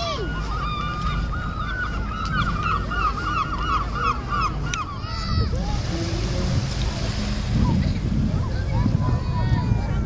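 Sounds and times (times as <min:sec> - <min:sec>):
gull calling: 0:00.0 - 0:05.8
steady low rumble: 0:04.2 - 0:10.0.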